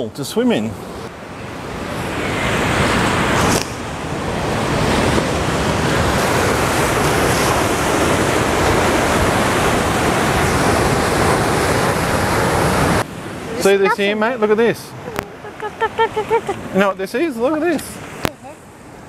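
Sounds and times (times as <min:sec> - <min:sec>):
wind buffeting microphone: 0:00.8 - 0:13.8
surf breaking on rocks: 0:01.6 - 0:14.6.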